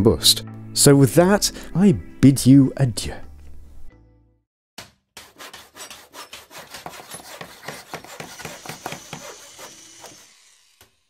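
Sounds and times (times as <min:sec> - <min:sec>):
rasping scratching strokes: 0:05.2 - 0:10.6.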